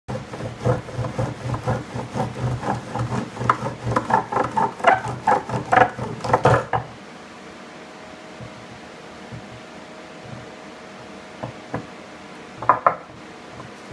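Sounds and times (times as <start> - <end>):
faint steady hum: 0.1 - 13.9
bow drill grinding and squeaking: 1.6 - 6.8.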